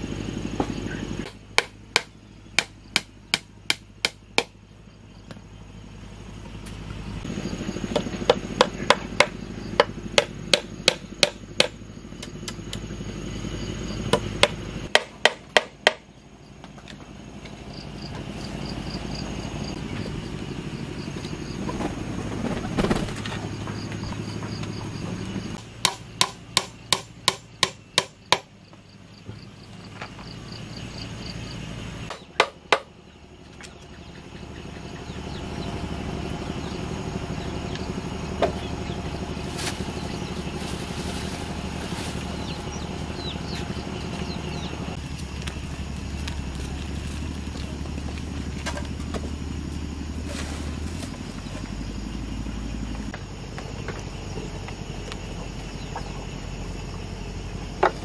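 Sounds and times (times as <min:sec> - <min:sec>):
hammer striking nails into wood: 0:01.2 - 0:04.6, 0:07.9 - 0:11.8, 0:14.1 - 0:16.0, 0:25.8 - 0:28.5, 0:32.1 - 0:32.9.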